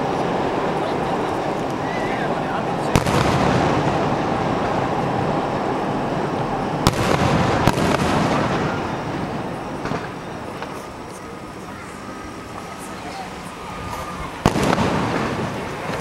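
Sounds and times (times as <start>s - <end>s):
dense rumble: 0.0s - 11.6s
firework shells bursting: 2.8s - 5.0s, 6.8s - 10.9s, 14.4s - 16.0s
sharp firework bangs: 2.8s - 5.3s, 6.8s - 10.9s, 14.4s - 16.0s.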